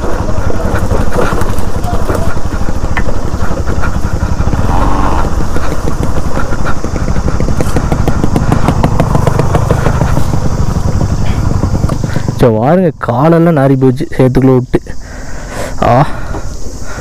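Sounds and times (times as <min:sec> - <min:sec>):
motorcycle engine running: 0:00.0 - 0:15.4.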